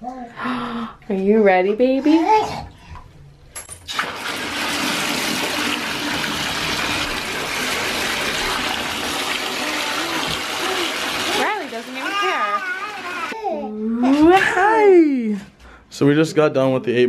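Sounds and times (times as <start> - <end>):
tap running into bath: 3.9 - 13.3.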